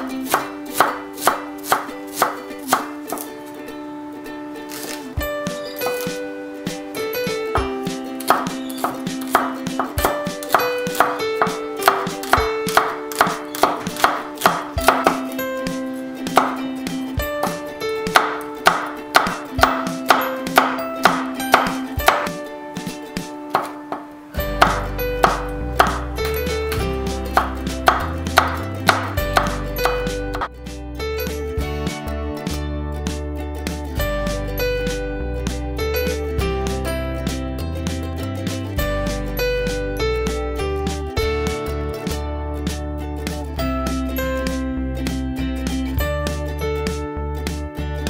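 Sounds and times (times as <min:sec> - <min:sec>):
knife slicing on wooden board: 0:00.0 - 0:03.3, 0:08.2 - 0:15.3.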